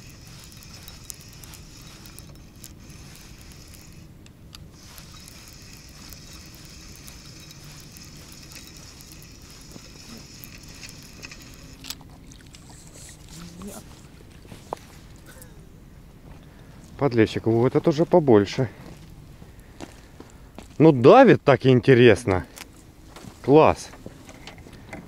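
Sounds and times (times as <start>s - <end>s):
fishing reel whirring and clicking: 0.0s - 14.1s.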